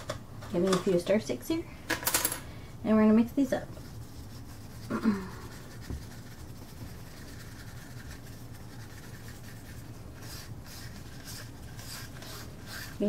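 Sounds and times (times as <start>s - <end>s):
stir stick scraping a cup: 3.8s - 13.0s.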